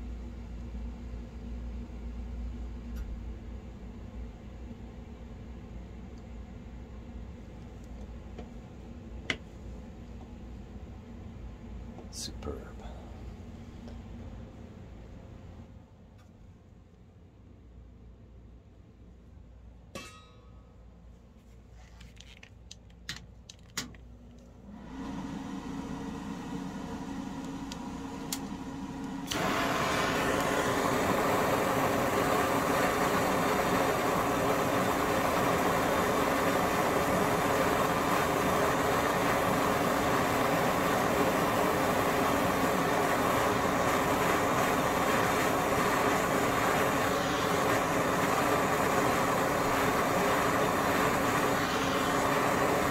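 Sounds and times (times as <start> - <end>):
gas torch flame hissing: 29.2 - 52.9.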